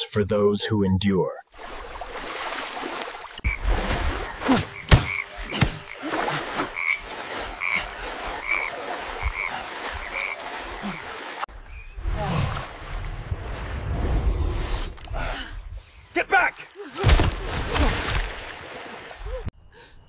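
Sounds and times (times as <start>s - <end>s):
frogs croaking: 3.2s - 12.0s.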